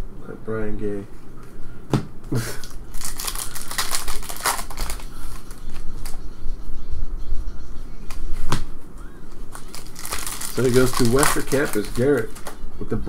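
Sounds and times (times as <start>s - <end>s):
cards clicking and rustling: 2.6s - 6.2s, 9.3s - 12.6s
trading cards snapping: 2.6s - 6.2s, 9.4s - 12.6s.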